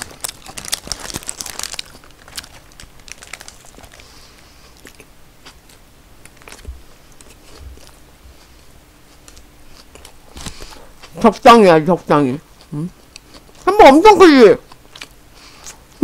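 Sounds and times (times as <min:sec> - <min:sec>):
paper wrapper crinkling: 0:00.0 - 0:05.0
person chewing: 0:00.0 - 0:11.2, 0:12.5 - 0:13.7, 0:14.6 - 0:16.0.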